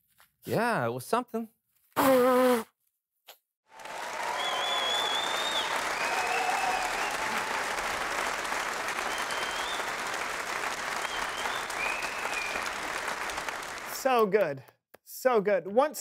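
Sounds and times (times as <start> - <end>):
crowd applauding and cheering: 3.7 - 14.5
high whistles: 4.1 - 7.6, 8.9 - 10.2, 10.9 - 12.9.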